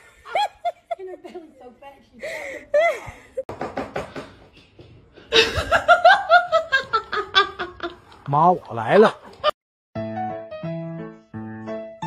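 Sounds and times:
person laughing hard: 5.3 - 8.0.

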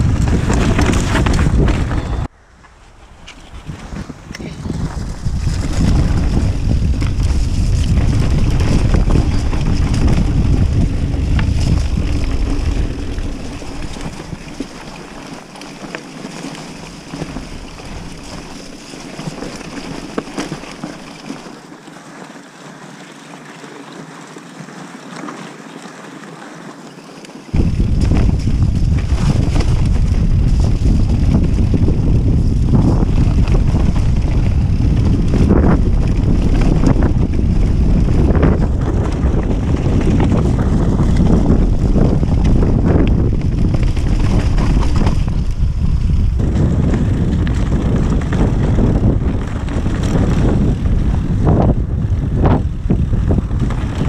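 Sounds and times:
wind buffeting microphone: 0.0 - 15.2, 27.5 - 54.0
tyres rumbling over dirt: 0.0 - 21.7, 27.5 - 54.0
bike clicks and rattles: 0.0 - 21.8, 25.0 - 54.0.

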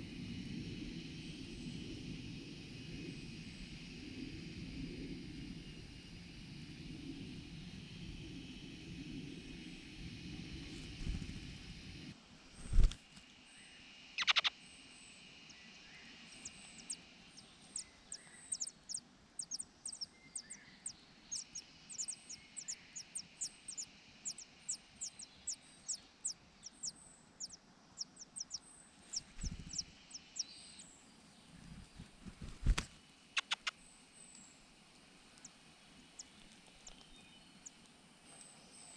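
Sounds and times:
nestlings begging calls: 14.2 - 14.5, 16.3 - 30.9, 33.4 - 33.7.

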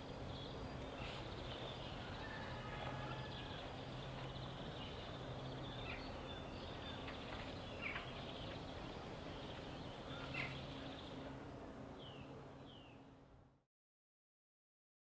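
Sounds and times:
birds chirping: 0.0 - 13.2.

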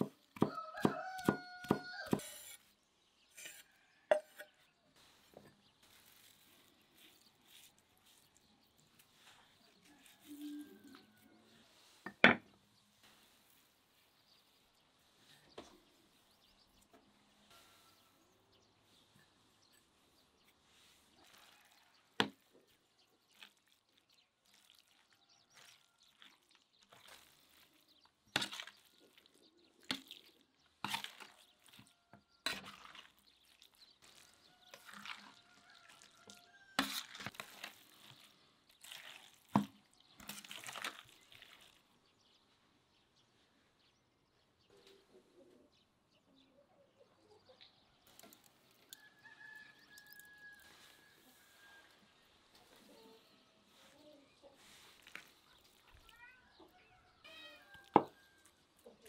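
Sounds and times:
raw meat mixing in bowl: 5.0 - 17.2, 19.6 - 42.1, 54.6 - 56.5.

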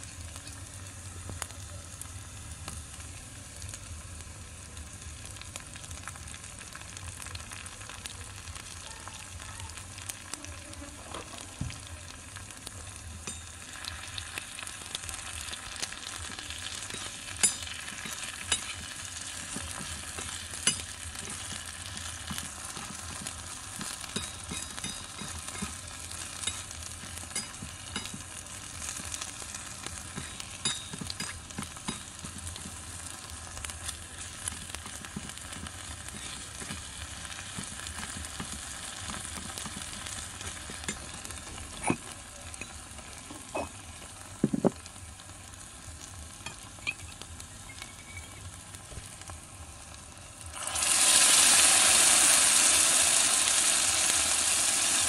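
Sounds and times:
food sizzling in a wok: 0.0 - 55.0
metal spoon scraping and clinking: 16.9 - 18.9, 30.1 - 32.3, 34.9 - 36.8.

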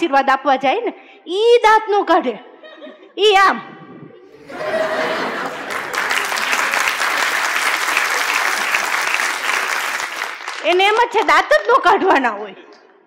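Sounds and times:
audience applauding: 4.4 - 11.2.

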